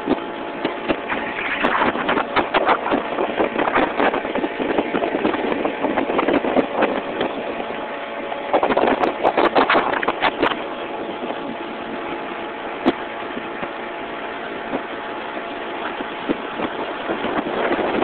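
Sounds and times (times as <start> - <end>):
boat motor humming: 0.0 - 18.0
rushing crackling noise: 0.6 - 7.5, 8.5 - 11.4.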